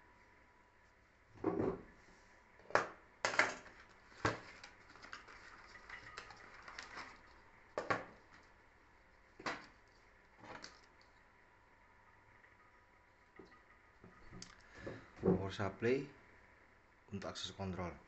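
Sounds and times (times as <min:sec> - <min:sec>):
cardboard and paper rustling: 0:03.3 - 0:08.5.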